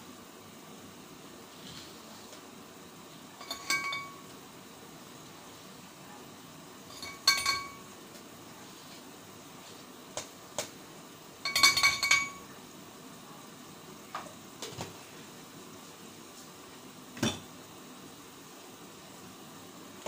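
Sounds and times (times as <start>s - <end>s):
kitchenware clicks and clinks: 3.4s - 4.3s, 6.9s - 7.9s, 11.4s - 12.5s.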